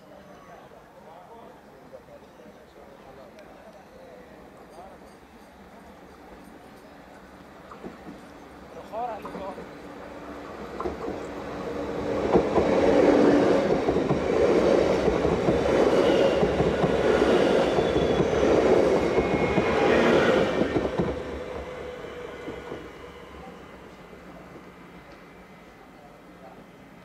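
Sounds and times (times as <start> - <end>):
train wheels rumbling on rail: 5.7 - 27.0.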